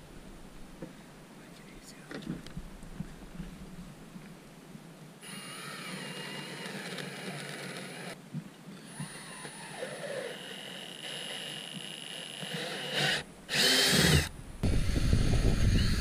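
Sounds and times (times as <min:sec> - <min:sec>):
cordless drill whining: 0:05.2 - 0:08.2, 0:08.8 - 0:16.0.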